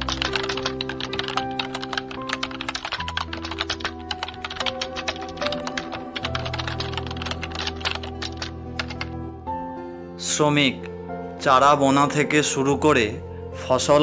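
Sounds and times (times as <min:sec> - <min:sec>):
keyboard typing clicks: 0:00.0 - 0:09.2
sustained chord music: 0:00.0 - 0:14.0.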